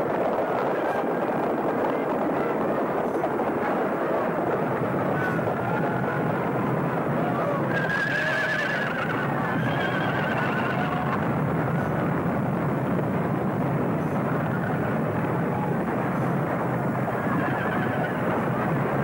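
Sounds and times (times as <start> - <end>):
long wavering whinny: 3.6 - 11.2
horses neighing: 3.7 - 11.2, 17.0 - 18.6.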